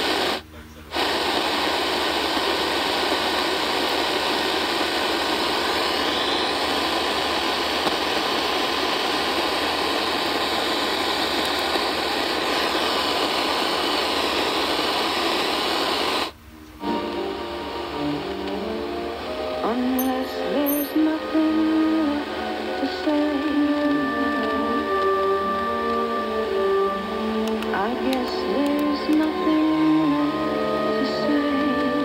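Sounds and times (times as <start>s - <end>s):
music from radio station: 0.0s - 32.0s
radio static hiss: 0.0s - 32.0s.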